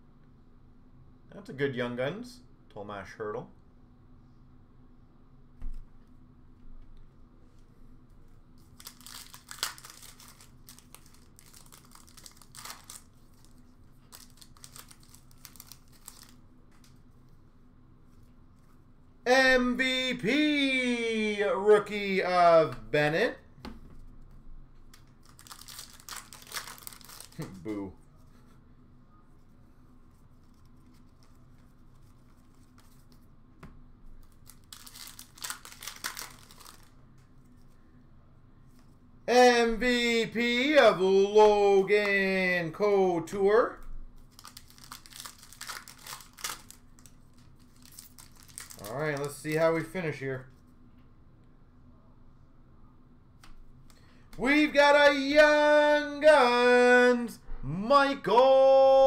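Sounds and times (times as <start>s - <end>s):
faint steady hum: 0.0s - 59.0s
card pack wrapper crinkling: 8.6s - 17.0s, 24.9s - 27.7s, 34.2s - 36.9s, 44.2s - 49.6s.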